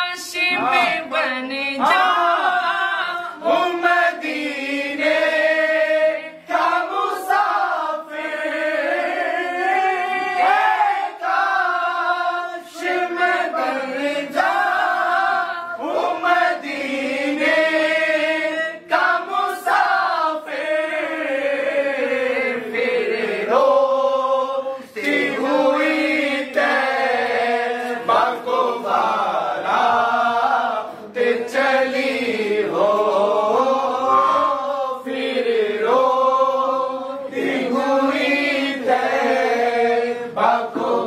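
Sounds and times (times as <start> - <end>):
men singing unaccompanied: 0.0 - 41.0.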